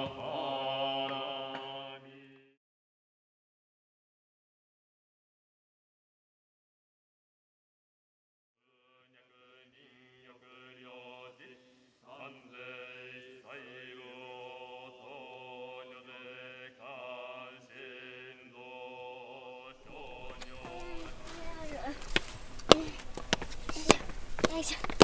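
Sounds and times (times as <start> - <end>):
voices chanting in unison: 0.0 - 2.6, 8.7 - 24.8.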